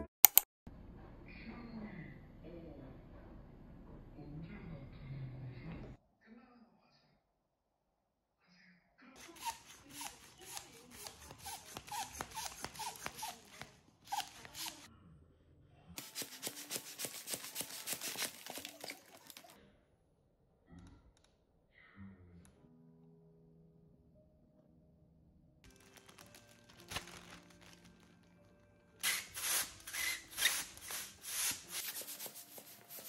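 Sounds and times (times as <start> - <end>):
foil balloon crackling: 9.2 - 14.9, 16.0 - 19.6, 25.7 - 33.0.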